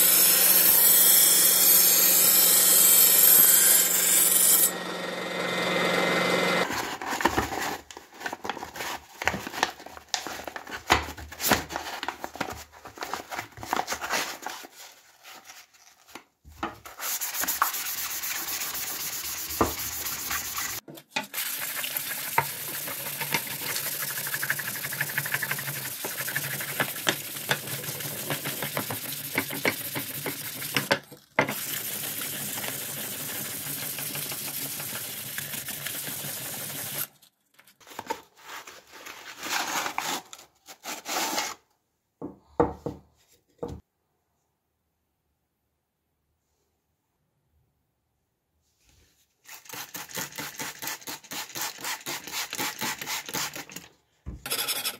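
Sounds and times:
whetstone scraping steel blade: 0:54.5 - 0:54.9.

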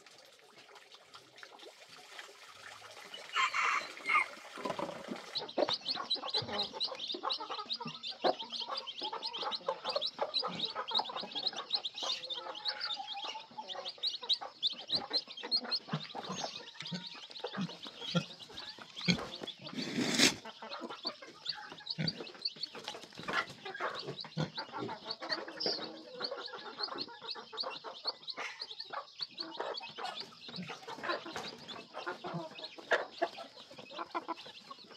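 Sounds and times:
chickens clucking: 0:00.0 - 0:34.9
roosters sparring: 0:15.9 - 0:25.0.

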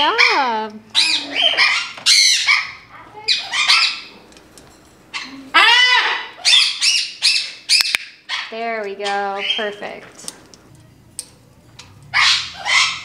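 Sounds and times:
parrot squawking: 0:00.0 - 0:04.2, 0:05.1 - 0:09.9, 0:12.1 - 0:13.0.

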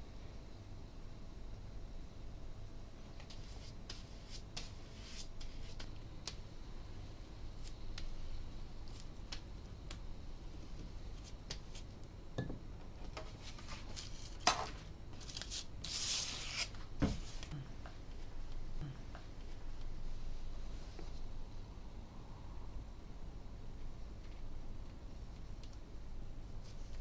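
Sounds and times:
paper rustling: 0:13.2 - 0:17.5.

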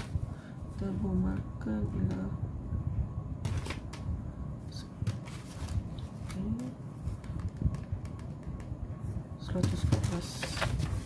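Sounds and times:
paper rustling: 0:03.4 - 0:03.9, 0:05.0 - 0:07.5, 0:09.6 - 0:11.0.

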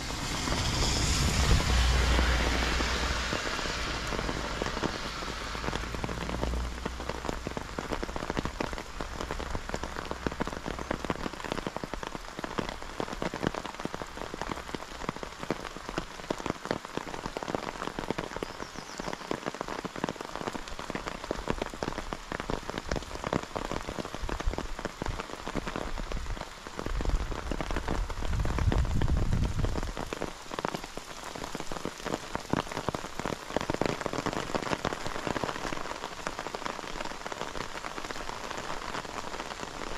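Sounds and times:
low rumble: 0:00.0 - 0:07.0
rain pattering: 0:00.0 - 0:39.9.

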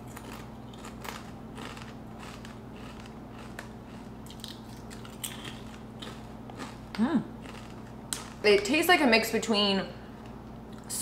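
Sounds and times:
potato chips crunching: 0:00.0 - 0:08.5.

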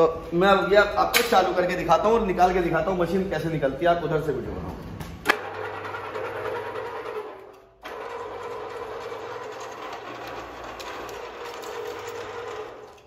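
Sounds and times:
wire stripping machine whine: 0:05.3 - 0:13.0.

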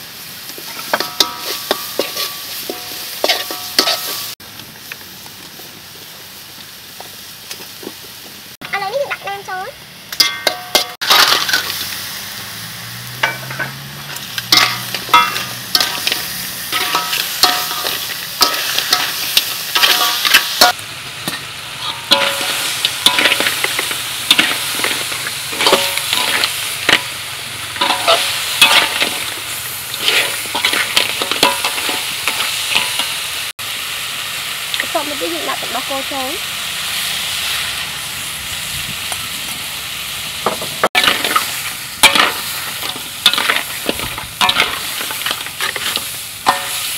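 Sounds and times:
food sizzling in a wok: 0:00.0 - 0:46.9
metal spatula scraping a wok: 0:00.6 - 0:04.4, 0:10.2 - 0:12.2, 0:13.2 - 0:33.3, 0:40.8 - 0:46.9.

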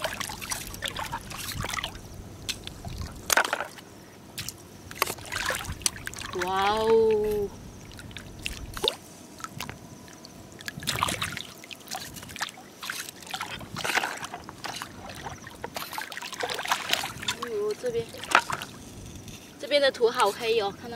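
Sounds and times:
seawater sloshing and splashing: 0:00.0 - 0:19.2.

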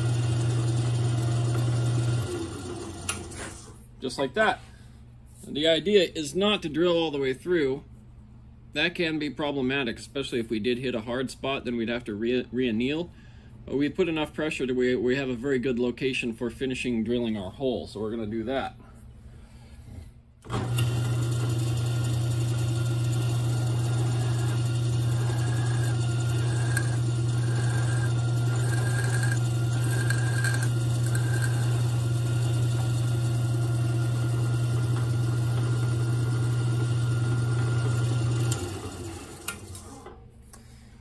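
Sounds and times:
drill press motor running: 0:00.0 - 0:03.7, 0:20.4 - 0:40.1
whine of drill bit cutting steel: 0:20.8 - 0:33.3.

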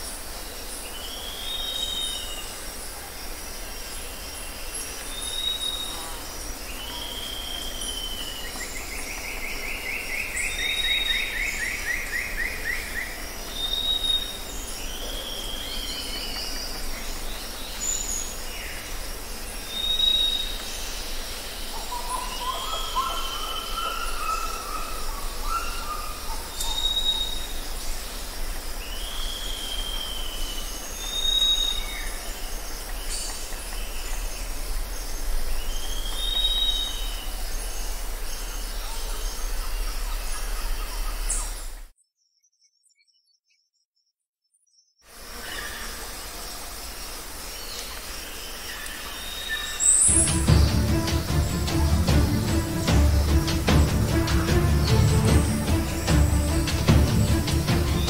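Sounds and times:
bird trill: 0:21.8 - 0:27.6, 0:49.2 - 0:58.0
bird whistled notes: 0:21.9 - 0:27.5.

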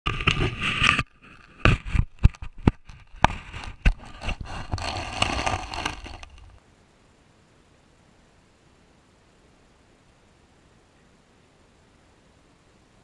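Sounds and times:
underwater noise: 0:00.1 - 0:06.6.

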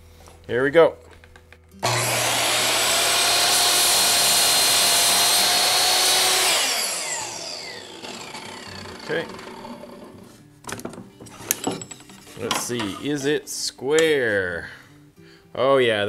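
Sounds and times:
saw blade winding down whine: 0:01.8 - 0:10.2
miter saw cutting wood: 0:01.8 - 0:10.3.

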